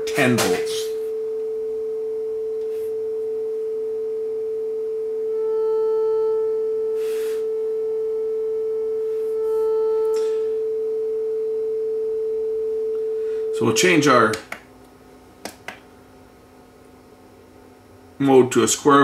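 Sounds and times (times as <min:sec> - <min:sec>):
sine-wave test tone: 0:00.0 - 0:14.1.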